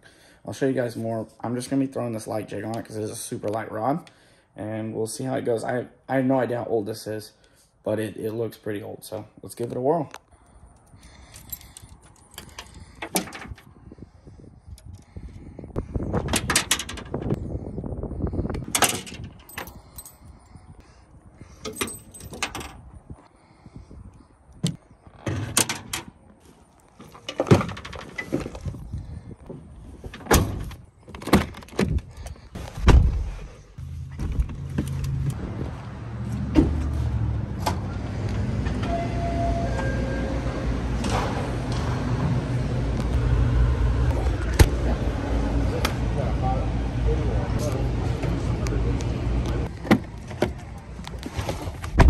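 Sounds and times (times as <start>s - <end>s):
car engine humming: 33.8s - 38.8s, 40.3s - 51.0s.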